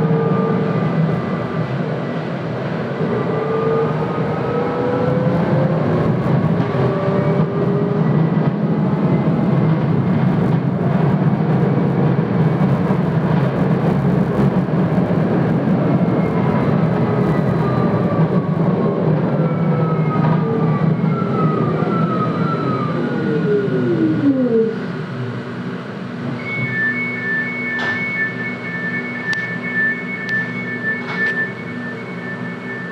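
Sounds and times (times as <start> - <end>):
tram wheels rumbling on rail: 0.0 - 32.9.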